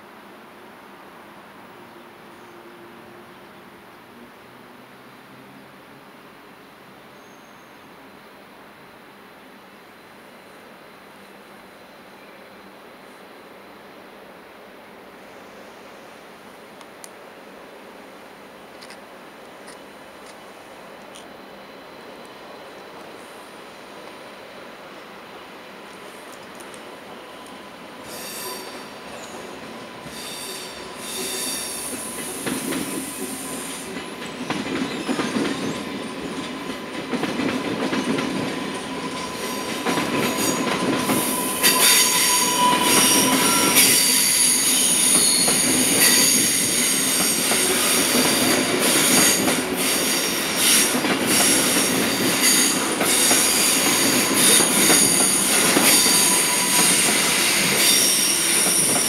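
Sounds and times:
train rumble: 16.3 - 59.0
high-pitched wheel squeal: 28.0 - 34.0, 38.7 - 59.0.

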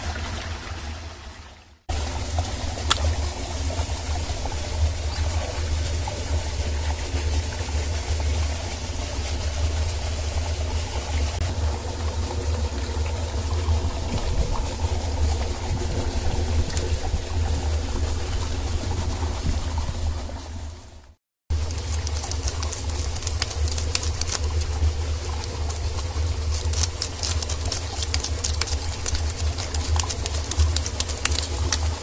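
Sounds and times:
running water: 0.0 - 32.0
motor humming: 21.5 - 32.0.

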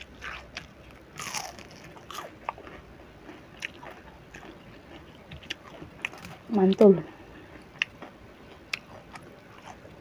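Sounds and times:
crunching fried fish: 0.0 - 6.8
chewing: 0.0 - 10.0.

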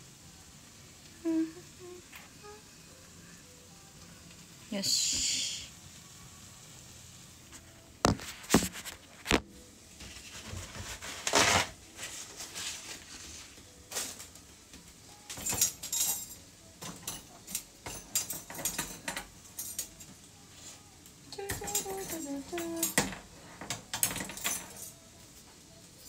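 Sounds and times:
utensils and dishes clinking: 13.8 - 14.4, 15.1 - 20.3, 21.3 - 26.0.

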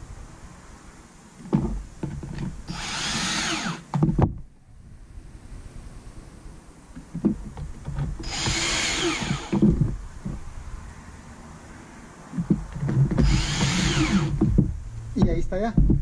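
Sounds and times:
cordless drill driving screws: 2.7 - 3.8, 8.2 - 9.6, 13.2 - 14.4
handling knocks: 12.4 - 16.0.

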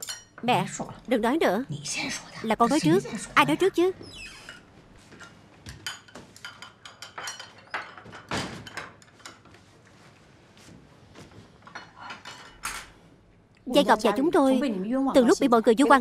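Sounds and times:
chopsticks tapping bowls: 5.1 - 8.1.

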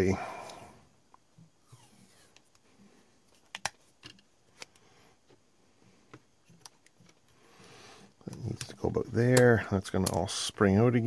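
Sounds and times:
small plastic parts clicking: 3.3 - 4.8, 8.2 - 10.3.

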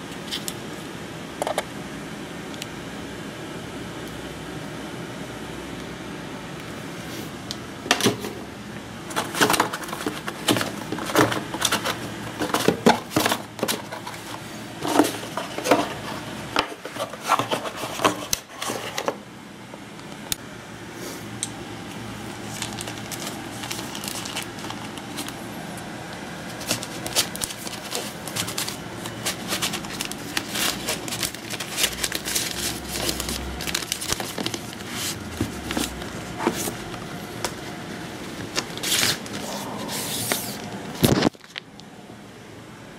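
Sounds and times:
plastic wrap crinkling: 9.1 - 19.1, 22.3 - 25.5, 26.4 - 41.8.

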